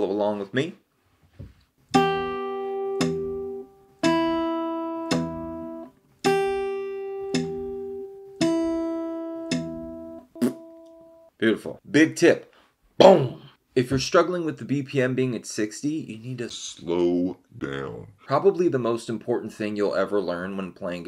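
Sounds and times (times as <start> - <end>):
fingerstyle acoustic guitar: 1.9 - 10.9.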